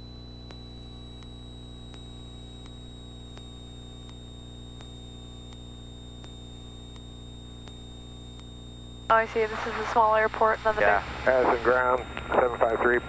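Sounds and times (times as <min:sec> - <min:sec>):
faint electrical ticks: 0:00.0 - 0:11.2, 0:11.9 - 0:13.0
thin high whine: 0:00.0 - 0:13.0
aircraft hum and hiss: 0:09.2 - 0:13.0.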